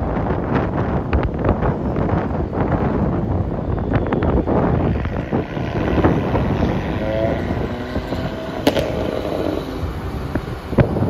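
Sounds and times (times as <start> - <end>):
road and traffic noise: 0.0 - 11.0
wind buffeting microphone: 0.0 - 11.0.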